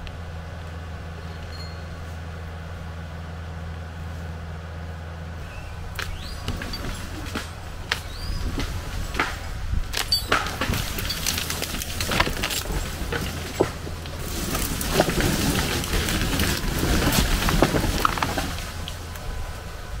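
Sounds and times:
low engine hum: 0:00.0 - 0:20.0
twigs crackling and snapping: 0:05.4 - 0:19.6.

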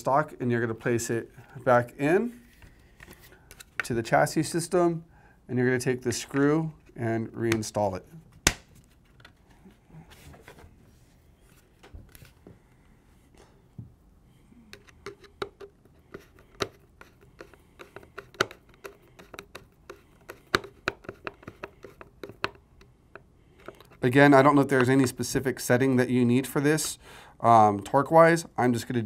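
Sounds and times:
clicks and taps on plastic stock: 0:14.7 - 0:24.0.

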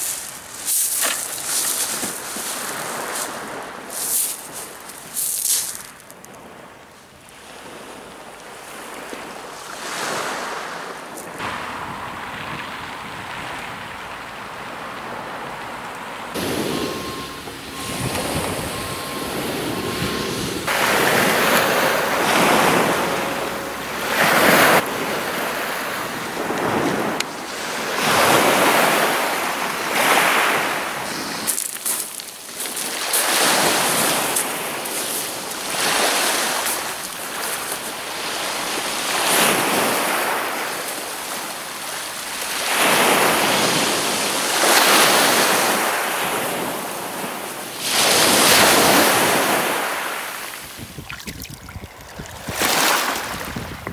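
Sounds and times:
waves washing over shingle: 0:00.0 - 0:06.7, 0:07.3 - 0:53.9
wind buffeting microphone: 0:11.4 - 0:31.5, 0:50.6 - 0:53.9
short beeps: 0:16.4 - 0:24.8.

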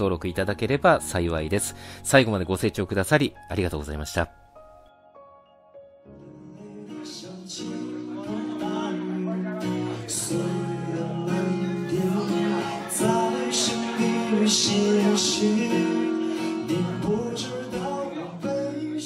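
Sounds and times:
man singing: 0:06.1 - 0:19.0
acoustic guitar strumming: 0:06.2 - 0:19.0.

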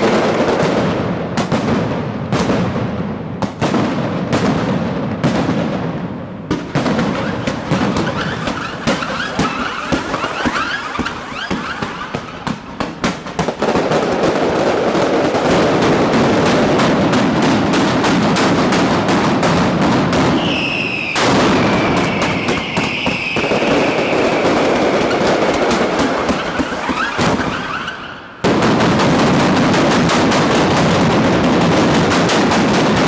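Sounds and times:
firecrackers exploding: 0:00.0 - 0:33.0
high whistle sliding down: 0:20.4 - 0:24.6.

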